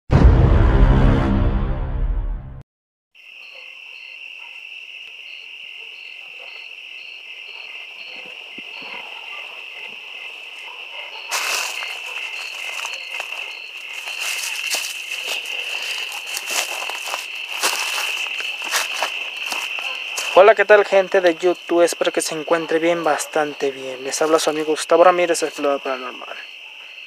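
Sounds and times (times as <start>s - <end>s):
eerie intro music: 0.1s - 2.6s
insect high-pitched trill: 3.2s - 27.0s
insect short chirp: 3.2s - 27.0s
rustling of brush: 11.2s - 20.4s.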